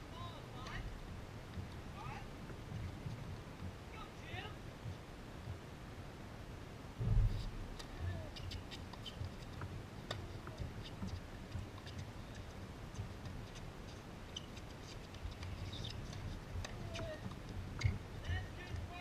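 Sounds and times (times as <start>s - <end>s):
court footwork: 7.0s - 19.0s.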